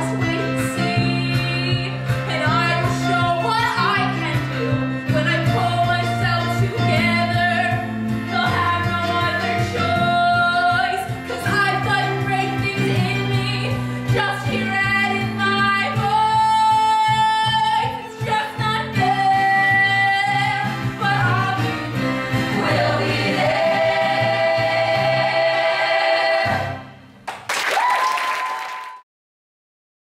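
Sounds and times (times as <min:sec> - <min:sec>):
musical accompaniment: 0:00.0 - 0:27.2
group of voices singing: 0:21.0 - 0:27.0.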